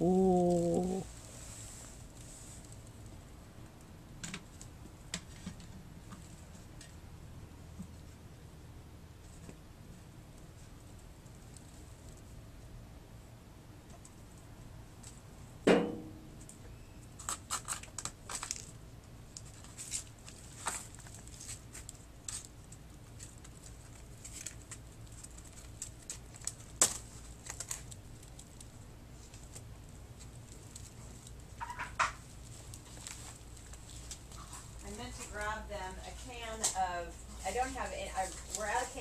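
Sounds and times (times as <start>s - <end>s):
sharp knock: 15.7s - 16.3s
crinkling: 16.4s - 39.0s.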